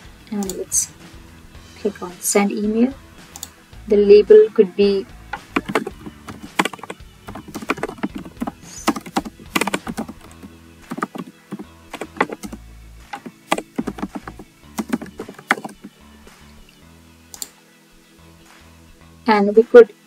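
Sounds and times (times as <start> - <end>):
computer keyboard typing: 5.4 - 15.9.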